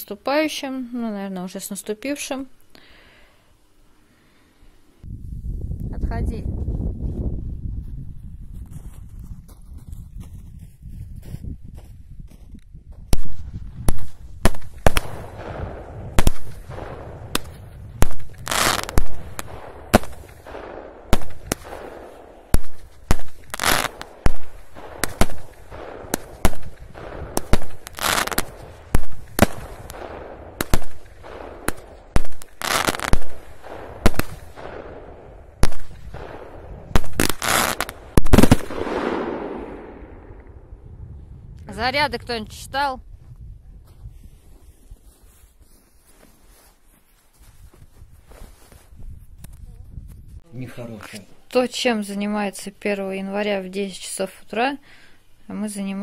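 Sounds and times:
fireworks bangs: 13.2s - 40.6s.

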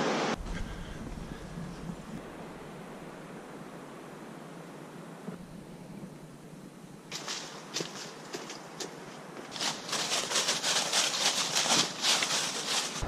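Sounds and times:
footsteps crunching dry leaves: 7.1s - 13.0s.

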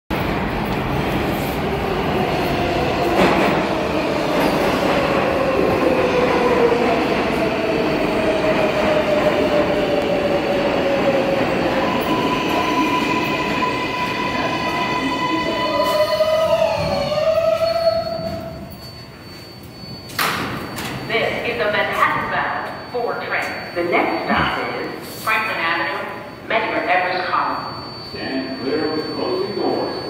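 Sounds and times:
subway train wheels rumbling on rail: 0.1s - 22.9s
train brakes tone: 11.1s - 30.0s.

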